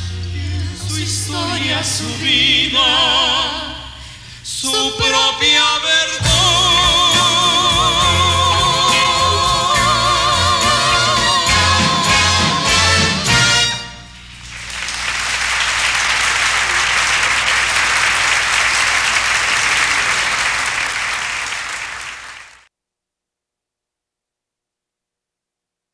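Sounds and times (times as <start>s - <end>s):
audience applauding: 14.4s - 22.7s.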